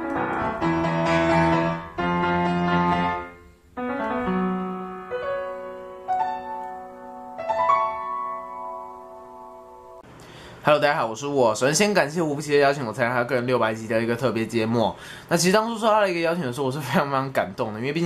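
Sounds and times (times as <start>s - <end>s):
solo piano chords: 0.0s - 10.0s.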